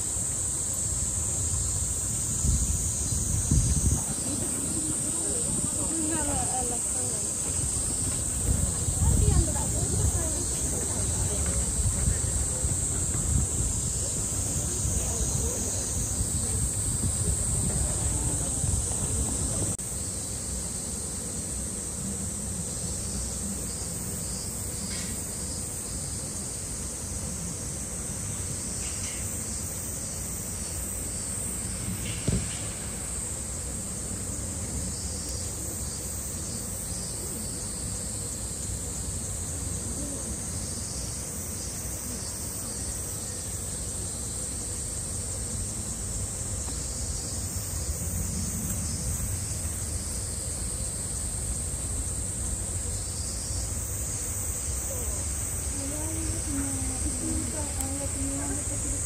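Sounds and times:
cicadas chorus: 0:00.0 - 0:59.0
sharp knock: 0:32.0 - 0:32.8.

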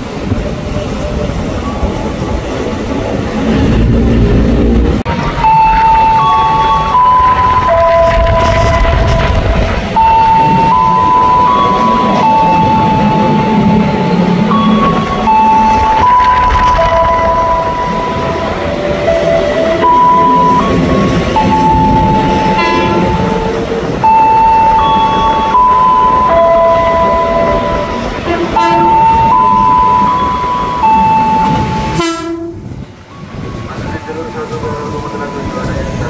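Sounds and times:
electric train rumbling: 0:00.0 - 0:36.0
electronic arrival chime melody: 0:24.0 - 0:28.0.

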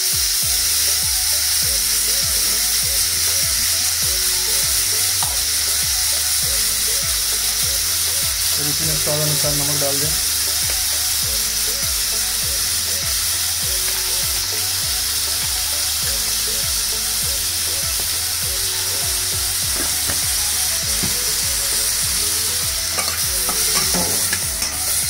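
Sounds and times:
vegetables sizzling in oil: 0:00.0 - 0:25.0.

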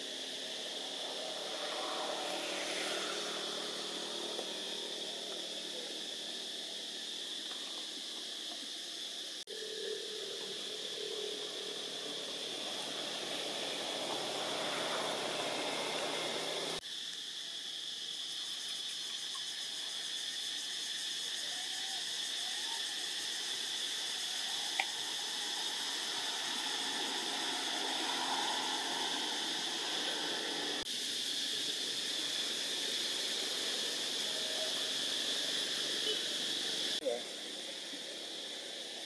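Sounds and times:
insects droning: 0:00.0 - 0:39.0.

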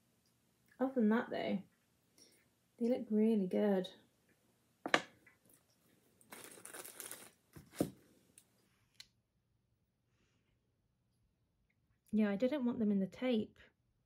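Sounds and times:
plastic wrapping crinkling: 0:06.2 - 0:08.0.

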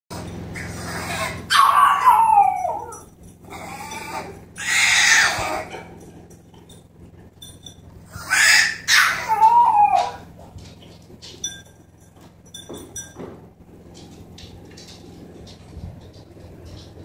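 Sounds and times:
puppy crying: 0:00.1 - 0:06.0, 0:08.1 - 0:10.4.

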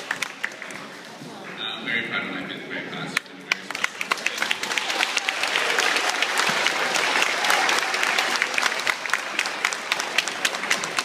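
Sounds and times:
audience applauding: 0:00.0 - 0:01.2, 0:03.5 - 0:11.0.

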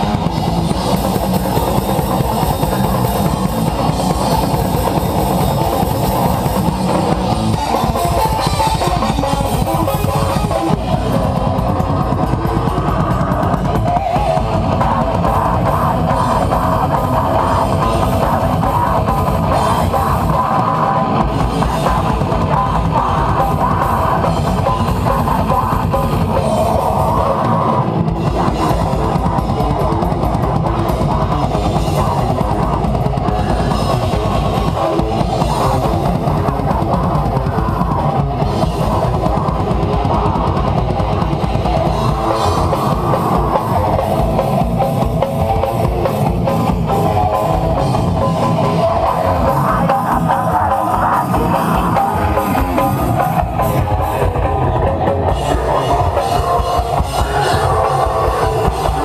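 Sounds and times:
drum kit with rapid bass drum: 0:00.0 - 0:59.0
electric guitar: 0:00.0 - 0:59.0.

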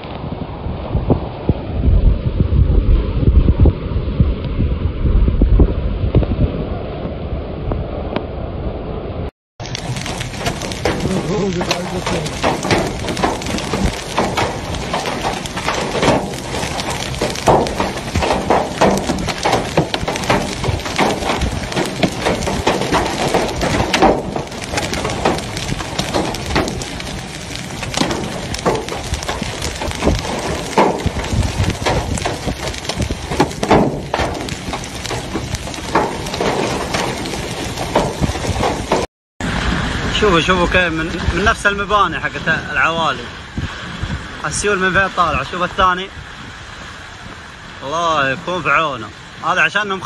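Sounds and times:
hail clattering on hard surfaces: 0:09.6 - 0:43.1.

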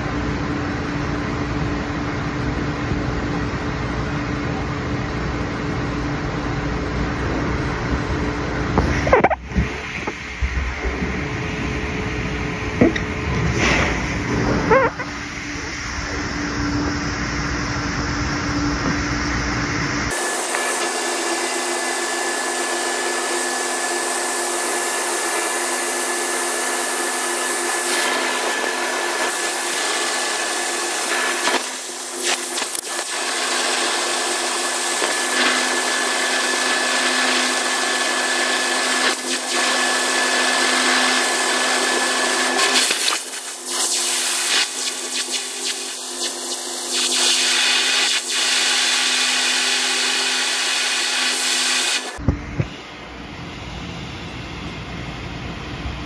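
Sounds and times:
high whine: 0:00.0 - 0:56.0
low rumble: 0:06.9 - 0:20.1
grinder hum: 0:08.5 - 0:53.0.

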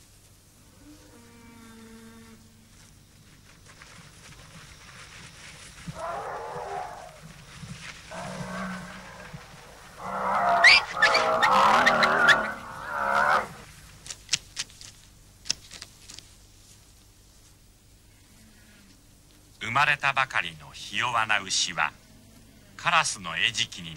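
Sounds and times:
cattle mooing: 0:08.1 - 0:13.6.

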